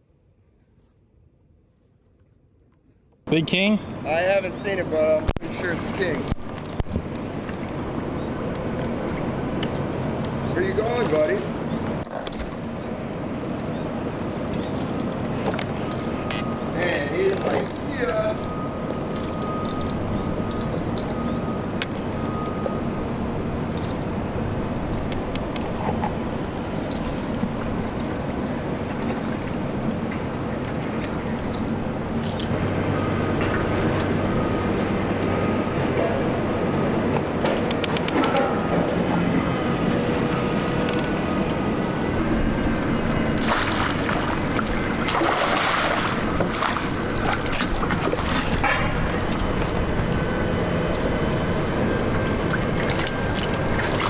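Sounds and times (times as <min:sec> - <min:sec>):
open water background noise: 0:00.4 - 0:54.0
fish splashing at the surface: 0:43.4 - 0:44.4, 0:45.0 - 0:48.6.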